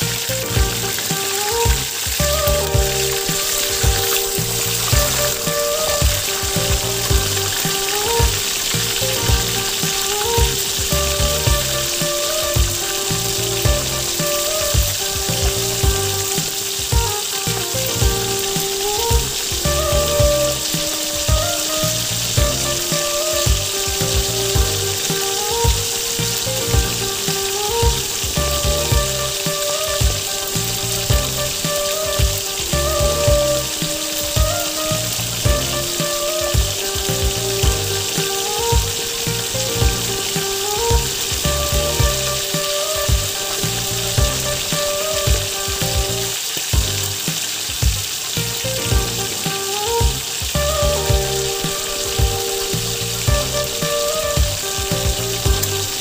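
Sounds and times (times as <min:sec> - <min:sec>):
background music with a beat: 0:00.0 - 0:56.0
fish sizzling in oil: 0:00.0 - 0:56.0.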